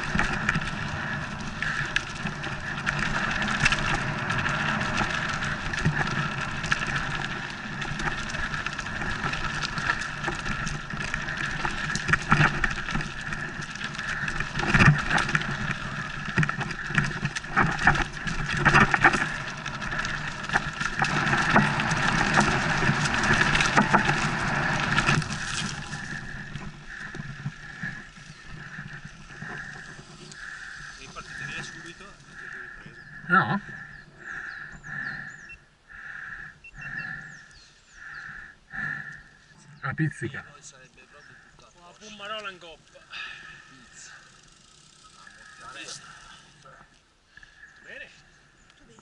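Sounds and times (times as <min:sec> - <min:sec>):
bike knocks and rattles: 0:00.0 - 0:29.9
bike tyre rush on dirt trail: 0:00.0 - 0:49.0.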